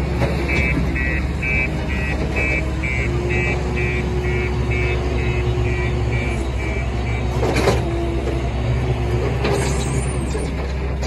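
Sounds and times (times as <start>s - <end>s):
diesel engine running: 0.0s - 11.0s
intermittent beeping: 0.5s - 7.6s.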